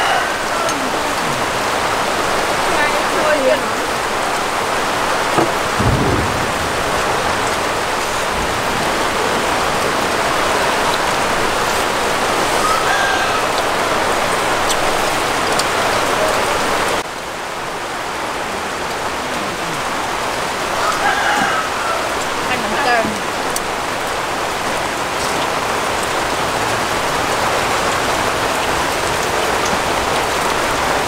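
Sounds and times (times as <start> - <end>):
steady rain falling: 0.0 - 31.0.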